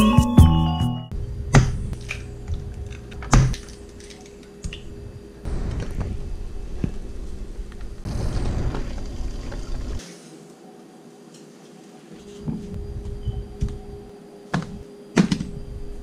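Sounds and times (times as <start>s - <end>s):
faint steady hum: 1.1s - 16.0s.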